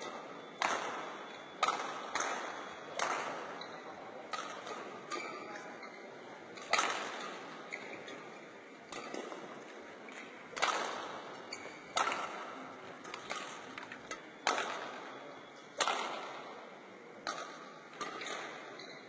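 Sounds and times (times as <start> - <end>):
racket hitting shuttlecock: 0.0 - 5.5, 6.6 - 8.3, 8.9 - 13.8, 14.4 - 15.0, 15.8 - 16.4, 17.2 - 18.7.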